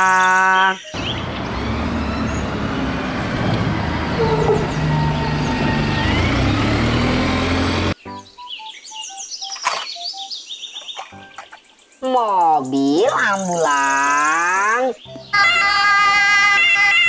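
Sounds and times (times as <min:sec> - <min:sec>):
road and traffic noise: 0:00.8 - 0:08.0
bus driving past: 0:01.0 - 0:08.0.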